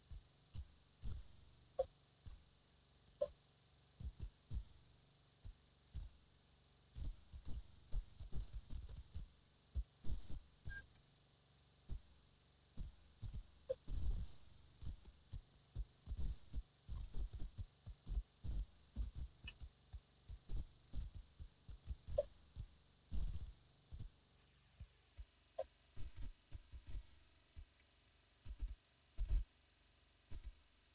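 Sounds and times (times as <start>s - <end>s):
faint short chirps: 10.6s - 11.0s.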